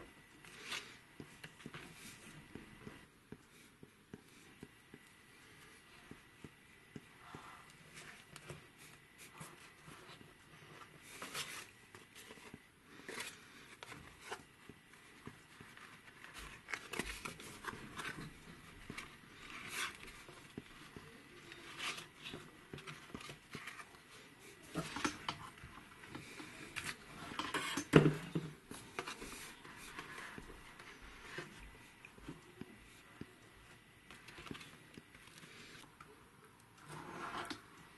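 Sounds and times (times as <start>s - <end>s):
cardboard rustling and scraping: 7.2s - 32.6s, 36.8s - 37.8s.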